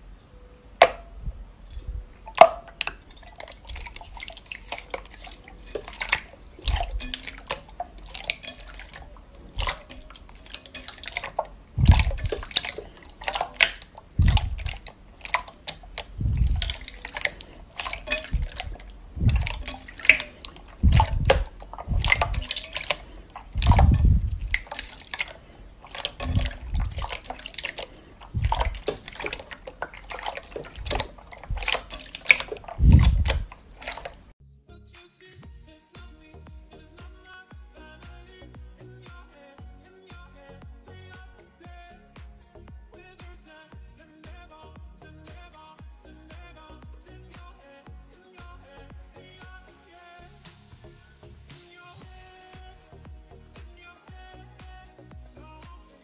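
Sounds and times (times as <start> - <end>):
slime squelching: 0.8 - 34.4
slime clicking and crackling: 1.7 - 34.3.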